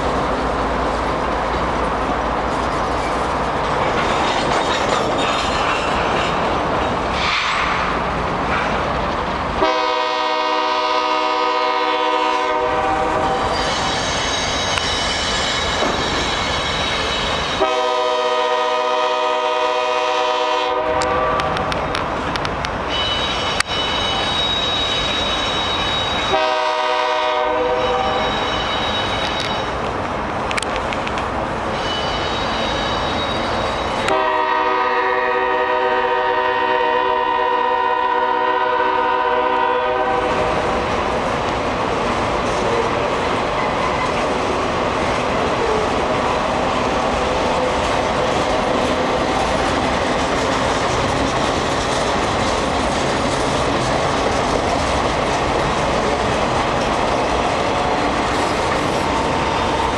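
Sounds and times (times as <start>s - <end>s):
freight cars rumbling and clattering: 0.0s - 9.6s, 28.0s - 34.1s, 40.3s - 59.9s
locomotive air horn blasts: 9.6s - 13.7s, 17.6s - 21.6s, 26.3s - 28.2s, 34.0s - 40.4s
thin high wheel squeal: 13.5s - 17.6s, 22.9s - 26.4s.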